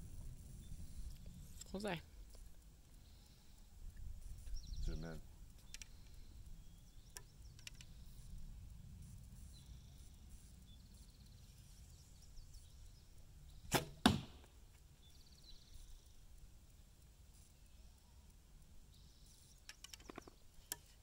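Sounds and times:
bowstring release: 13.7s - 14.4s
arrow striking target: 13.7s - 14.5s.

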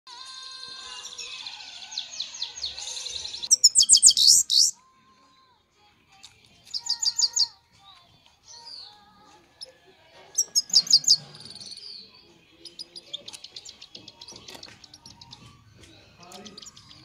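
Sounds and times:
bird twittering song: 0.9s - 4.8s, 6.7s - 7.6s, 8.4s - 17.0s.

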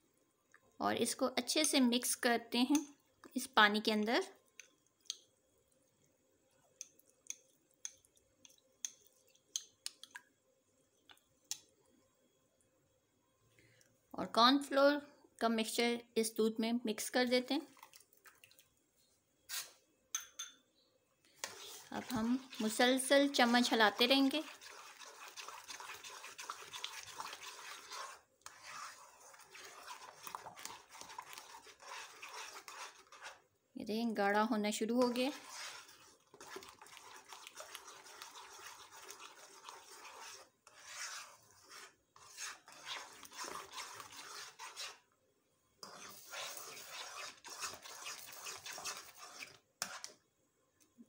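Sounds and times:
spoon clicking against glass bowl: 20.2s - 20.6s
spoon scraping a pan: 21.3s - 33.4s, 34.9s - 45.1s, 45.8s - 50.2s.

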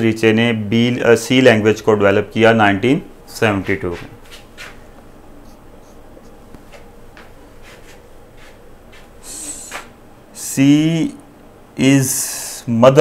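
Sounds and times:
marker on whiteboard: 6.6s - 9.9s.

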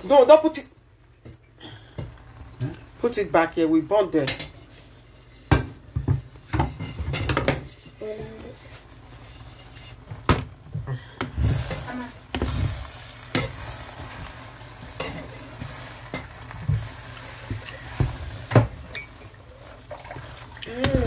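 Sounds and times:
frying sizzle: 0.0s - 21.0s
spatula scraping metal pot: 6.5s - 10.1s.

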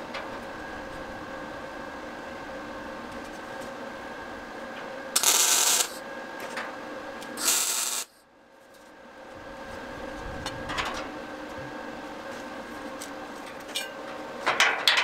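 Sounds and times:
faint hum: 0.0s - 14.9s
welder hissing: 5.2s - 6.0s, 7.4s - 8.2s.

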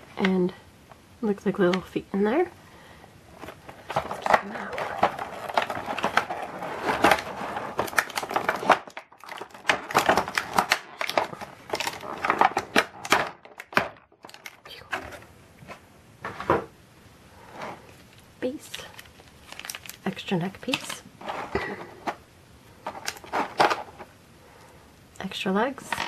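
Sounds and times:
plastic tray crackling: 3.3s - 15.8s, 17.6s - 22.2s, 22.8s - 24.1s.

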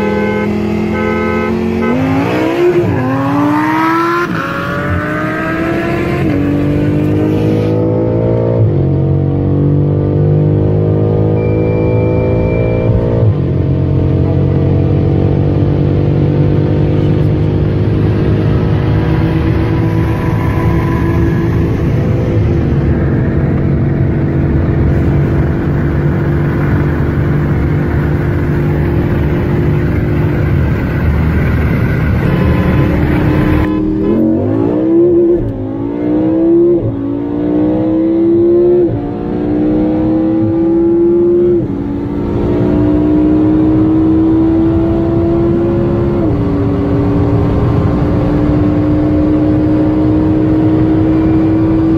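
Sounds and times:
car engine at full throttle: 0.0s - 51.9s
car accelerating through gears: 1.7s - 15.8s, 27.4s - 51.9s.

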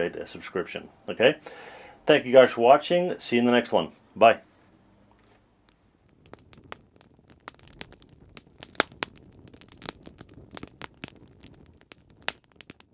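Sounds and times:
wood fire crackling: 4.5s - 12.9s
sharp pops and snaps: 5.6s - 12.9s.

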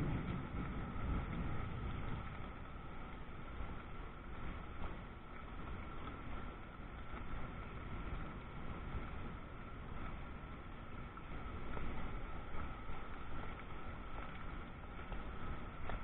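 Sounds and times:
low thunder rumble: 0.0s - 3.5s.

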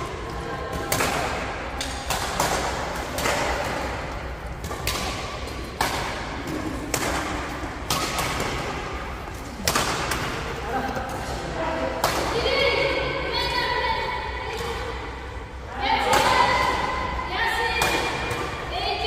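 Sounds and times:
racket smacking shuttlecock: 0.2s - 12.4s.

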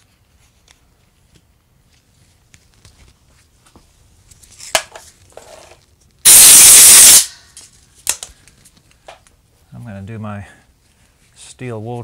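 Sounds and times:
pressurised spray hiss: 6.3s - 7.3s.

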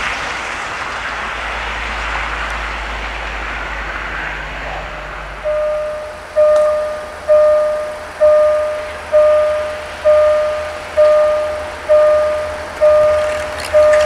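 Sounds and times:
level crossing bell ringing: 5.4s - 14.0s.

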